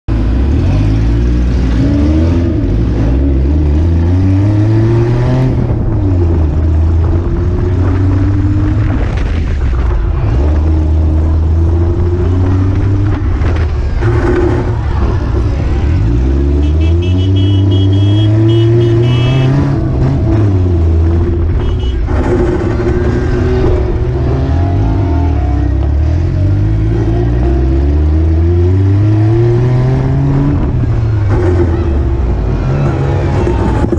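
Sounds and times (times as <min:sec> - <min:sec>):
car engine revving hard: 0:15.9 - 0:21.4.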